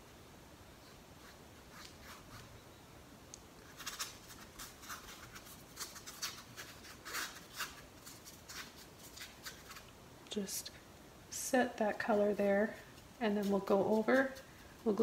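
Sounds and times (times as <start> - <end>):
paintbrush strokes on canvas: 12.0 - 15.0.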